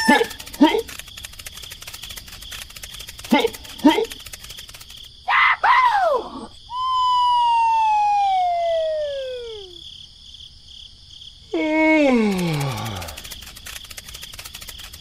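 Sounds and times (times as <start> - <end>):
rising and falling whoops: 5.4 - 9.8
tone gliding down in pitch: 6.8 - 9.8.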